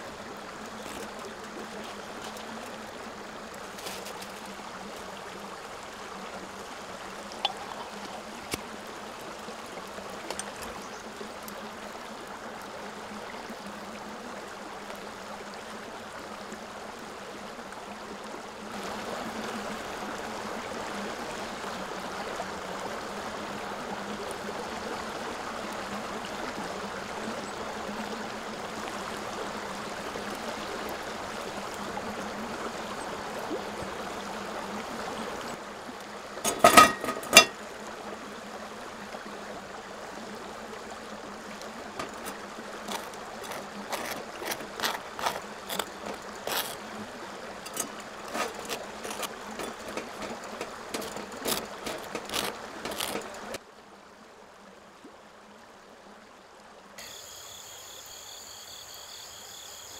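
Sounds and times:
hot water trickling onto coffee: 0.1s - 11.6s, 36.4s - 37.6s, 41.6s - 53.6s
knife spreading butter on toast: 42.0s - 46.8s, 47.7s - 53.4s.

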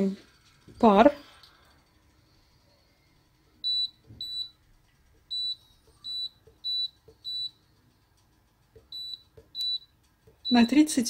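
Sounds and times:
short high beeps: 10.5s - 10.8s.

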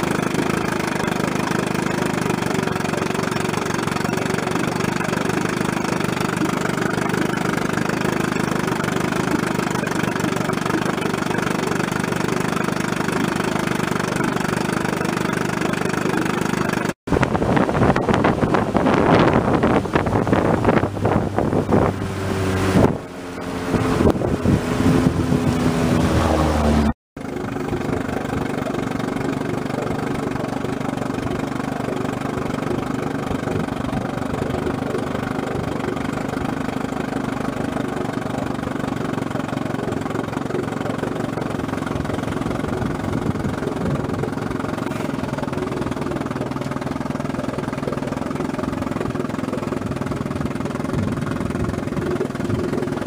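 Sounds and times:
outboard motor running: 0.0s - 53.0s
wind on microphone: 17.1s - 36.5s, 41.6s - 44.7s, 49.7s - 53.0s.

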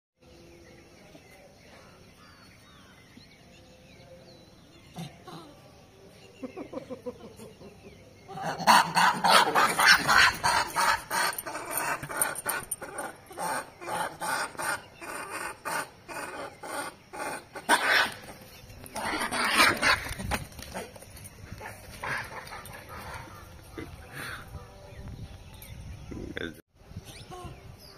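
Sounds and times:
monkeys screeching: 8.4s - 18.4s.

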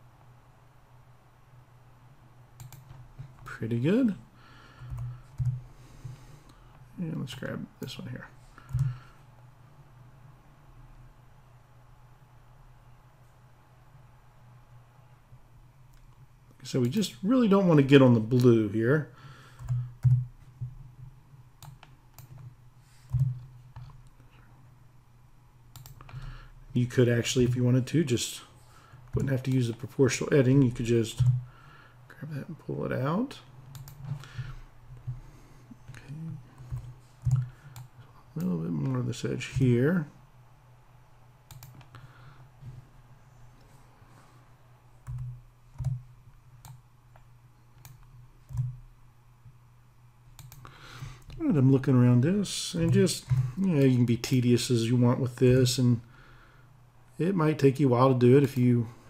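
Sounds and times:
steady low hum: 0.0s - 59.0s
computer mouse and keyboard clicks: 2.6s - 3.5s, 4.8s - 5.6s, 8.6s - 9.0s, 21.6s - 24.2s, 25.7s - 26.3s, 33.7s - 35.2s, 35.8s - 38.0s, 41.5s - 42.0s, 45.0s - 48.8s, 50.4s - 51.4s.

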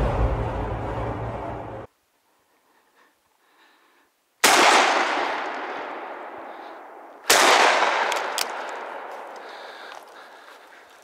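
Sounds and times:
shotgun shots with echo: 4.4s - 6.3s, 7.3s - 9.1s.

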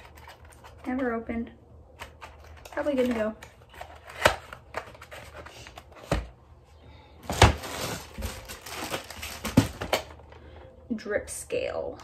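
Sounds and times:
cardboard and plastic rustling: 0.0s - 1.0s, 2.0s - 6.4s, 7.2s - 10.7s
boxes knocking down: 7.2s - 10.1s.

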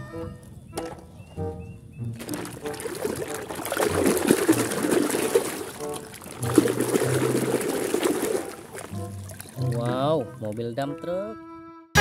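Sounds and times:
hand splashing water in basin: 2.2s - 10.6s.

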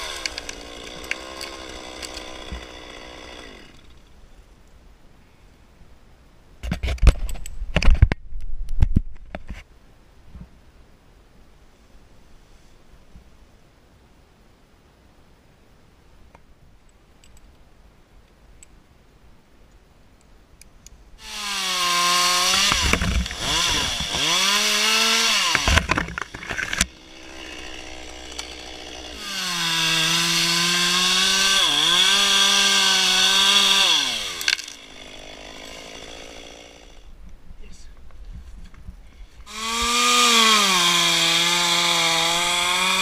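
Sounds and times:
chainsaw cutting branches: 0.0s - 4.1s, 21.2s - 37.1s, 39.4s - 43.0s.

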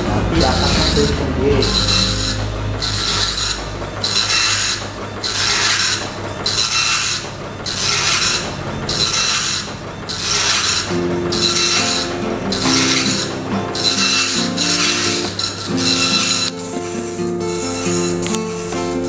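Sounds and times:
dot-matrix printer buzzing rasp: 1.6s - 19.0s.

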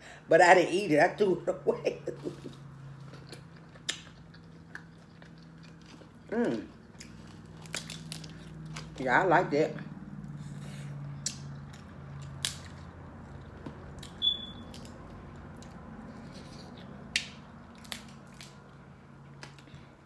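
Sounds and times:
crab shell cracking: 7.0s - 8.9s.

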